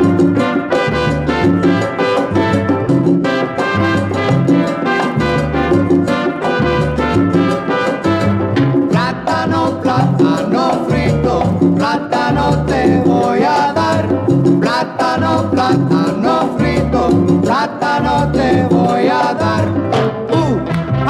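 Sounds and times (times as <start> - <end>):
latin dance orchestra playing: 0.0 - 21.0.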